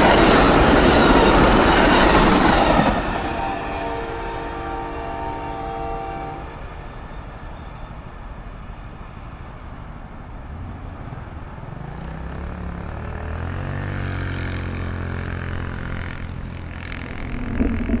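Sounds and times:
passing engine drone: 11.8s - 18.0s.

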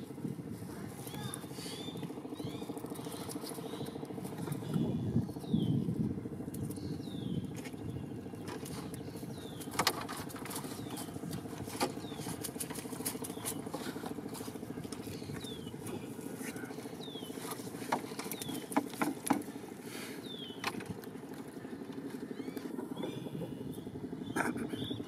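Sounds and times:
steady low drone: 0.0s - 25.0s
fish clicking into plastic crate: 17.5s - 19.6s.

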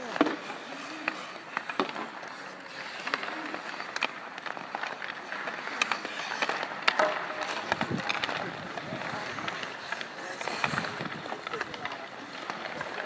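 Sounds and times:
hockey sticks clacking on puck: 0.0s - 13.0s
skates scraping on ice: 0.0s - 13.0s
faint voices of players: 5.2s - 13.0s.

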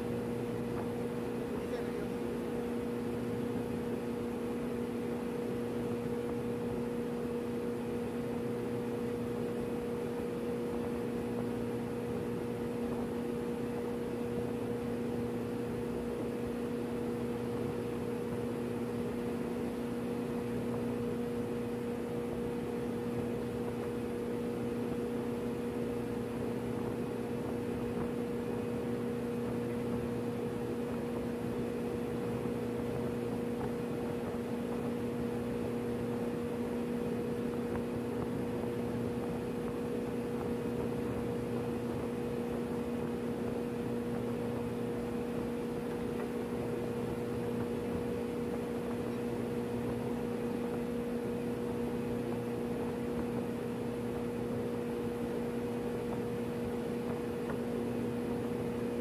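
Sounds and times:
fainter higher hum: 0.0s - 59.0s
ship machinery hum: 0.0s - 59.0s.

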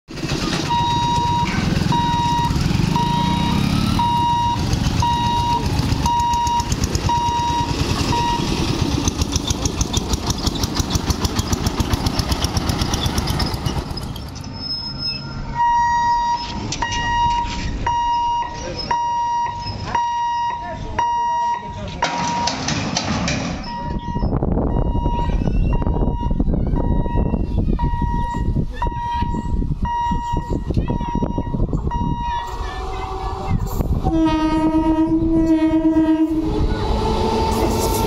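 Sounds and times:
motorcycle engines: 0.1s - 38.0s
road traffic rumble: 0.1s - 38.0s
level-crossing warning beeps: 0.7s - 8.7s, 14.7s - 22.6s, 23.6s - 32.6s.

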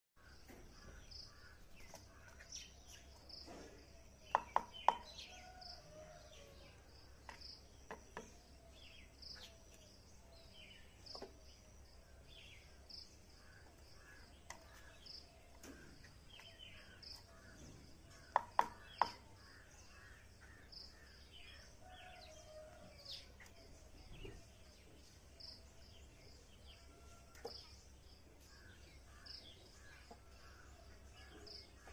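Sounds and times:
birds chirping: 0.2s - 31.9s.

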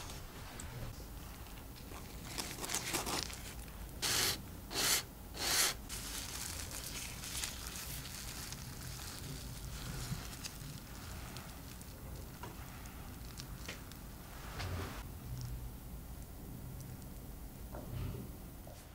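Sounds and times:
pie crust crunching: 1.8s - 3.8s, 5.9s - 14.1s.

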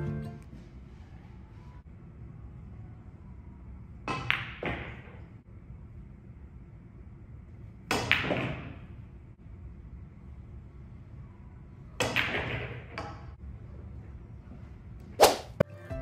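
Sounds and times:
billiard balls clacking: 4.1s - 5.3s, 7.9s - 9.0s, 12.0s - 13.4s.

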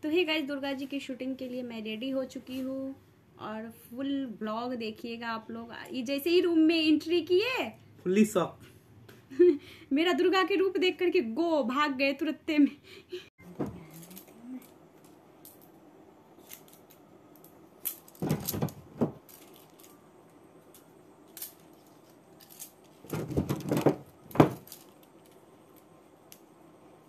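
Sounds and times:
bangles clinking and jangling: 13.9s - 15.8s, 16.4s - 18.6s, 19.2s - 23.1s, 24.1s - 26.4s.

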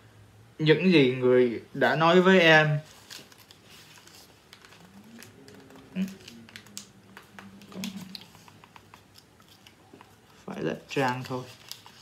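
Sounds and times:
book pages rustling: 2.8s - 12.0s.

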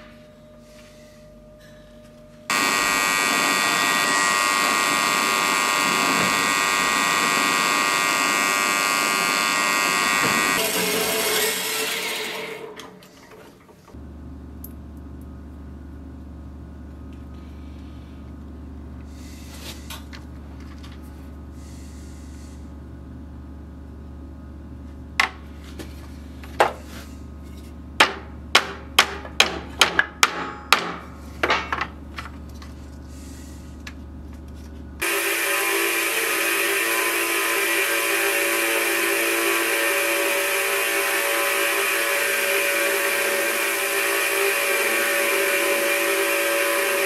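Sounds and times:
low hum: 0.0s - 28.5s, 32.0s - 47.0s
loud buzzing machine: 2.4s - 14.0s, 35.0s - 47.0s
hammer ringing on anvil: 30.2s - 31.7s.

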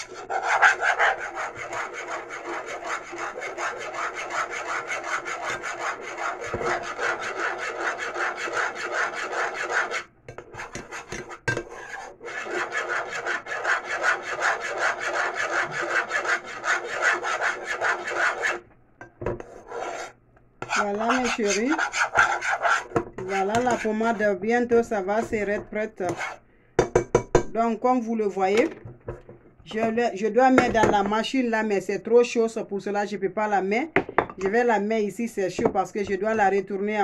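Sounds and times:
spoon stirring paste in pot: 0.0s - 27.4s.

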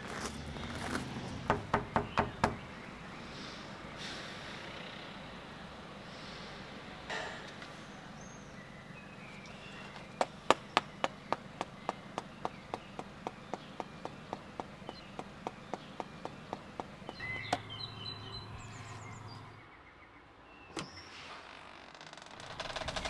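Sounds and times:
birds chirping faintly: 0.0s - 21.1s.

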